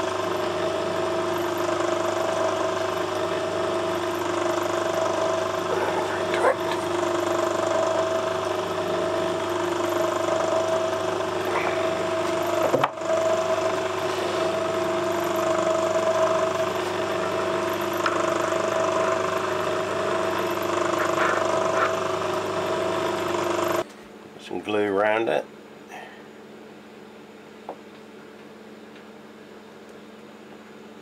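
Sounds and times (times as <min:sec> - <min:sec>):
lathe humming: 0:00.0 - 0:23.9.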